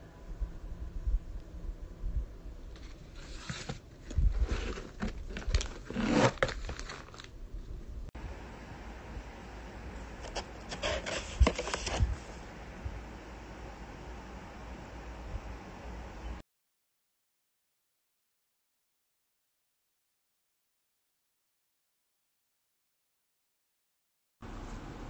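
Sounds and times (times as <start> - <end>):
sachets crinkling and scraping: 3.2 - 7.4.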